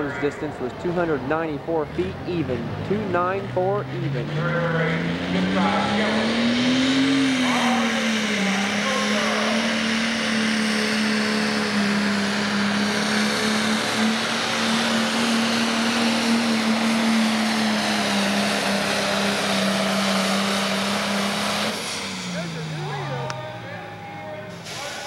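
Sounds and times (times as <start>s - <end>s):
diesel engine running under load: 0.0s - 25.0s.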